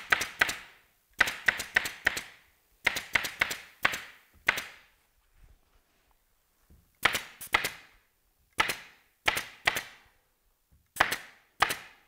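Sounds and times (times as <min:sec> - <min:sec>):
pneumatic staple gun firing: 0:00.0 - 0:04.7, 0:11.0 - 0:12.0.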